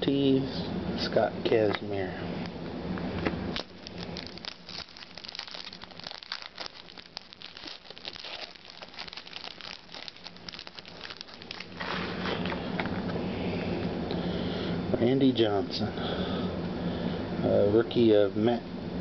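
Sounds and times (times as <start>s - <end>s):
foil wrapper crinkling and tearing: 3.6s - 12.4s.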